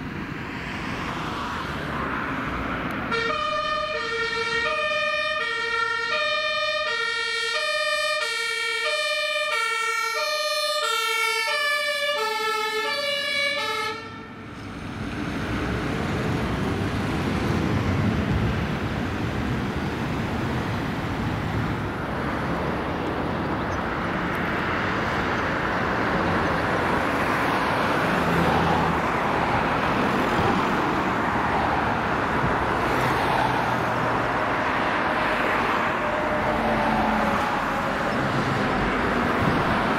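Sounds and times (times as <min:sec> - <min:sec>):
heavy truck engines: 0:00.0 - 0:39.9
road traffic noise: 0:00.0 - 0:39.9
two-tone fire siren: 0:03.1 - 0:14.5, 0:33.5 - 0:39.9.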